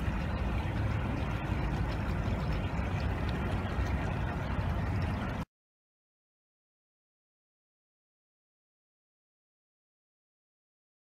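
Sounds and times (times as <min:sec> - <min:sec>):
low outdoor rumble: 0:00.0 - 0:05.5.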